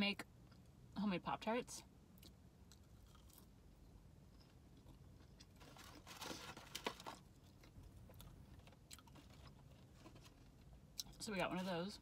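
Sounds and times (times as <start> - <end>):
foam box crinkling: 5.5 - 7.5.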